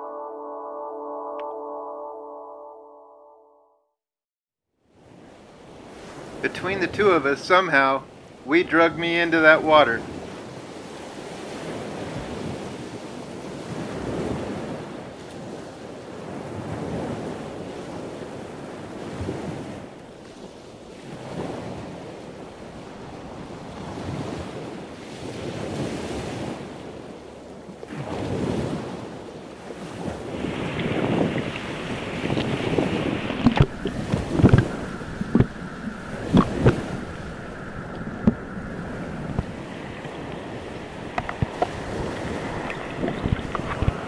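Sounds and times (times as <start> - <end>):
sea water lapping: 5.4 - 44.0
wind buffeting microphone: 9.4 - 27.2, 27.9 - 44.0.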